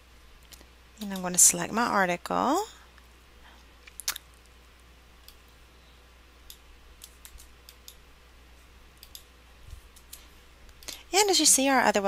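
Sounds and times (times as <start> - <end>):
low steady hum: 0.0 - 12.0
computer mouse clicking: 5.2 - 5.6, 6.4 - 8.0, 9.0 - 9.3, 9.9 - 11.0.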